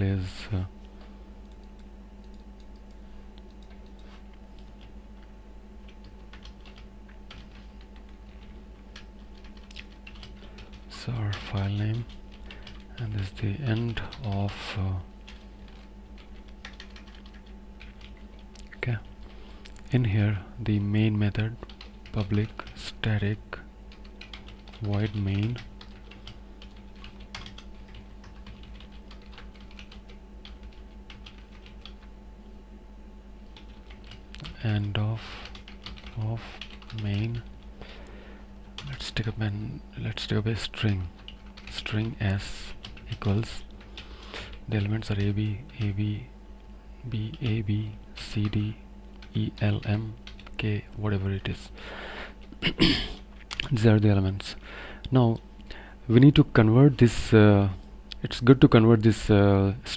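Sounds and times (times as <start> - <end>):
steady low hum: 0.0 - 59.9
computer keyboard typing: 1.4 - 4.9, 5.8 - 14.5, 15.2 - 19.4, 21.6 - 22.8, 23.9 - 32.1, 33.5 - 37.5, 40.8 - 46.0, 49.2 - 50.6.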